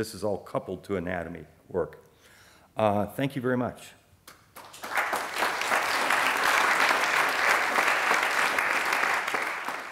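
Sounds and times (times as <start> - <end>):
audience applauding: 4.6 - 9.9.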